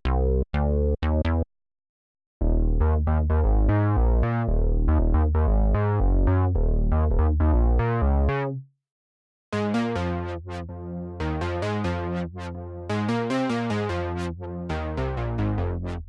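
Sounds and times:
synthesizer bass line: 2.4s - 8.6s, 9.6s - 16.0s.

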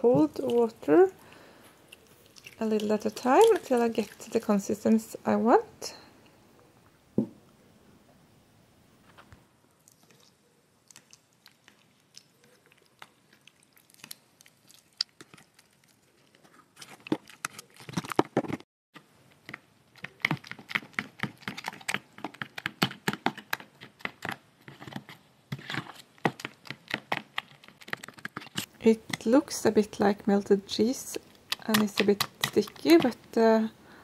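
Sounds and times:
wet squishing of soap paste: 0.0s - 5.2s, 9.8s - 17.8s, 30.0s - 33.4s.

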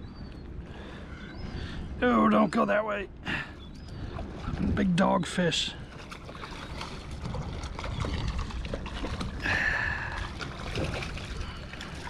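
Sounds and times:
water splashing: 4.0s - 12.0s.

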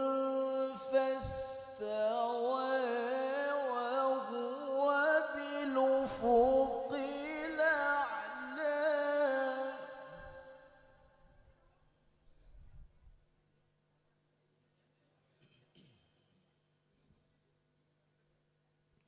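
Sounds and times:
man reciting melodically into microphone: 0.0s - 10.8s.

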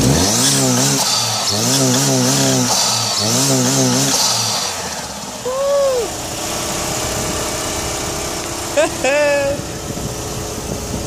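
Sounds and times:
car engine idling: 0.0s - 11.0s
turbo whistle rising and falling: 5.4s - 6.2s.

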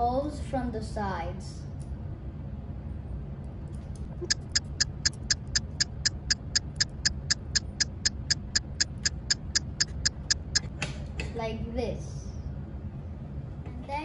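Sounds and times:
rapid ticking: 4.1s - 10.7s.

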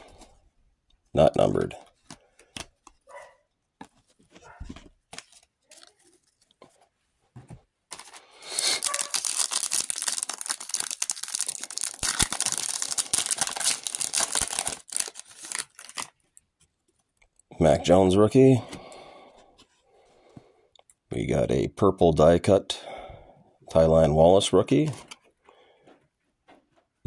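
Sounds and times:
foil wrapper crinkling: 7.9s - 16.4s.

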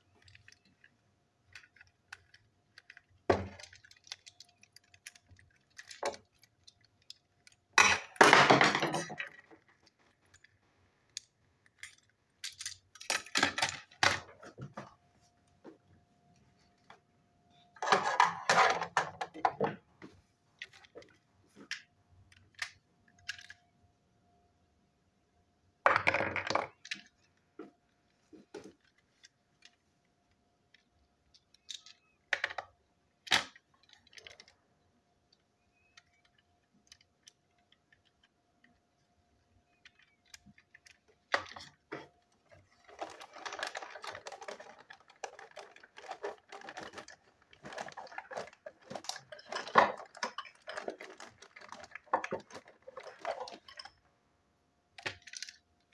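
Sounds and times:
plastic toy parts clicking: 0.1s - 8.2s, 8.8s - 14.3s, 21.7s - 23.7s, 26.3s - 27.4s, 30.7s - 34.6s, 35.3s - 54.0s, 55.0s - 55.9s
rustling handling noise: 35.3s - 54.1s.

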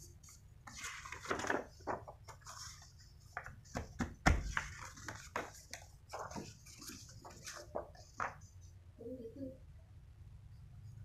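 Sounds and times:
paper rustling and crackling: 0.3s - 8.4s.

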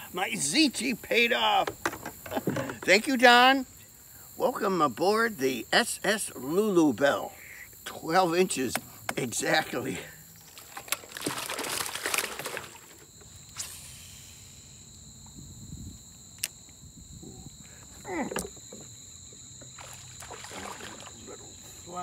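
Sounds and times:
insects chirring: 0.0s - 22.0s
handling rustle: 10.4s - 13.3s.

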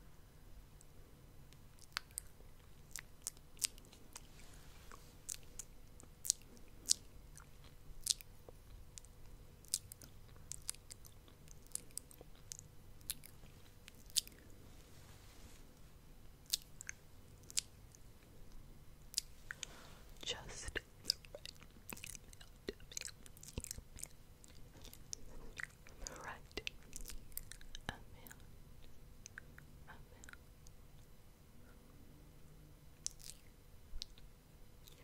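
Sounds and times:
wet tongue and lip clicks: 1.5s - 4.3s, 4.9s - 14.5s, 16.4s - 19.6s, 20.6s - 30.8s, 33.0s - 35.0s.

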